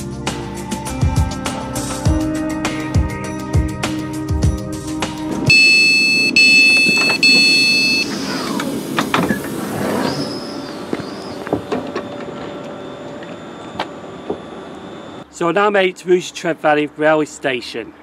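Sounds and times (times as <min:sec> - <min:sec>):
sliding doors opening: 0:05.2 - 0:15.2
train door alarm beeps: 0:05.5 - 0:08.6, 0:10.1 - 0:15.2.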